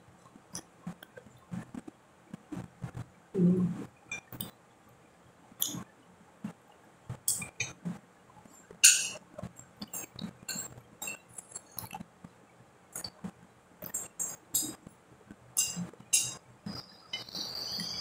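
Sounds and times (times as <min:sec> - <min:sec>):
dishes clinking: 0:08.8 - 0:09.2, 0:15.6 - 0:16.4
wet mouth clicks and chewing: 0:09.5 - 0:12.0.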